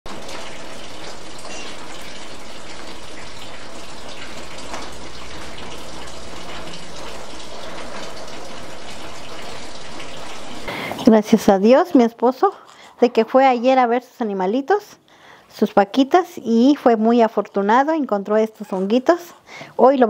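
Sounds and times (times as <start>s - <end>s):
steady rain falling: 0.1s - 11.0s.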